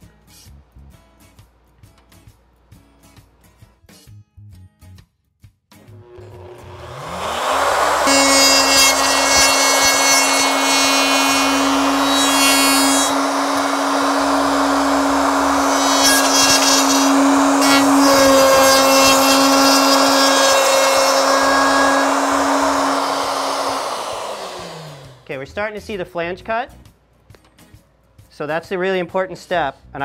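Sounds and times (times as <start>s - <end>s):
router high whine: 5.9s - 25.2s.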